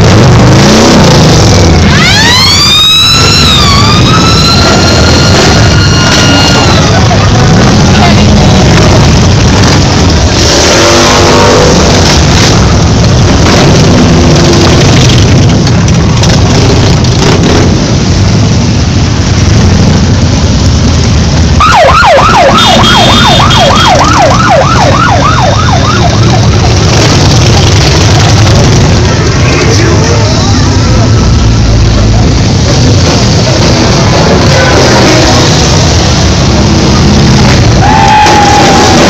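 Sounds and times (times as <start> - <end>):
motorcycle engines rumbling: 0.0 - 39.0
warbling siren-like tone: 1.7 - 7.9, 21.6 - 26.9.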